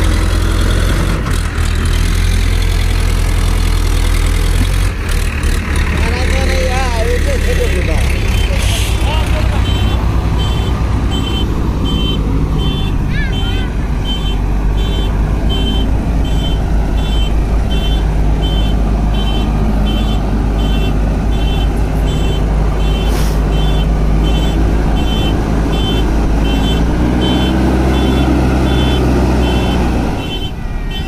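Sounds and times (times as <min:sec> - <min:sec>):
diesel engine running under load: 0:00.0 - 0:31.0
high-pitched warning alarm beeping: 0:09.5 - 0:31.0.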